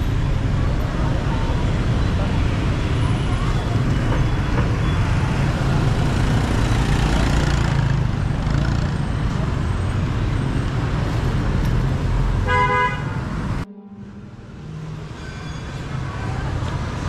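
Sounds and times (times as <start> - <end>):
road traffic noise: 0.0 - 17.0
vehicle horn honk: 12.4 - 15.9.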